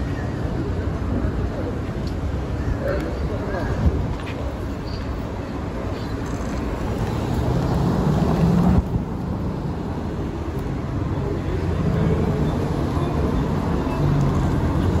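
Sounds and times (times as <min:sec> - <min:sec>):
car engines passing: 0:00.0 - 0:15.0.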